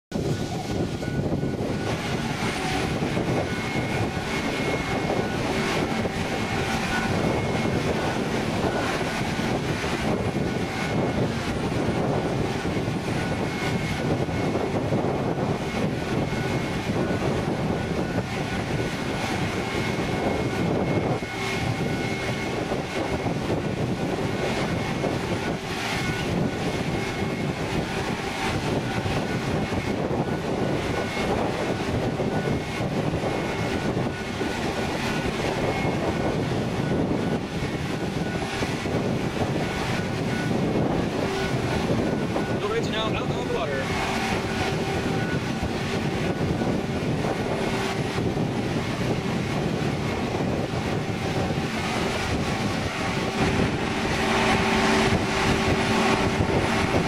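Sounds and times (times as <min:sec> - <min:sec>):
engine drone: 0:00.0 - 0:57.0
faint high whine: 0:00.2 - 0:57.0.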